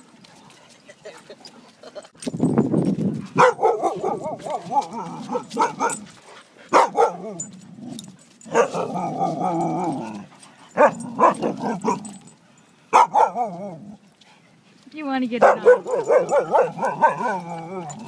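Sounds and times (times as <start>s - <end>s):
dog barking: 3.4s - 6.0s, 6.7s - 7.4s, 8.5s - 9.3s, 10.8s - 12.0s, 12.9s - 13.6s, 15.4s - 18.0s
dogs giving wavering calls: 3.4s - 14.0s, 15.4s - 18.0s.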